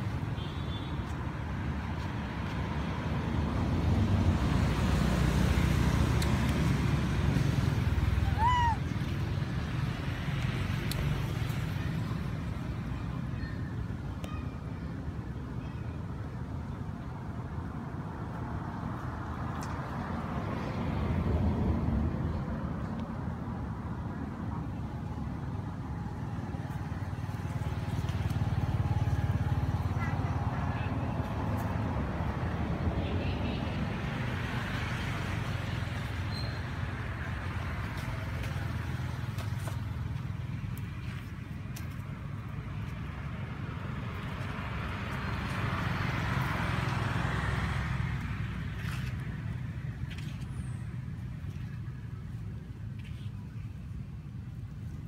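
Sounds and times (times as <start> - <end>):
rumble of motor traffic: 0.0 - 55.0
vehicle passing: 25.8 - 51.0.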